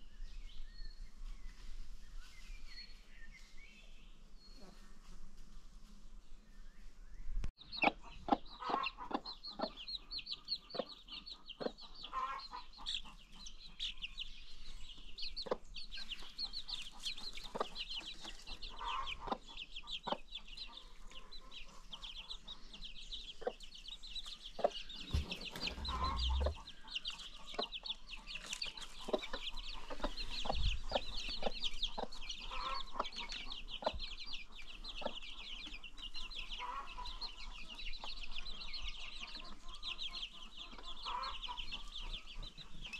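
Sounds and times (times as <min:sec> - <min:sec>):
baby chicks peeping: 0:07.5 - 0:42.9
low clucks: 0:24.6 - 0:27.7
dull low thumps: 0:25.0 - 0:26.7.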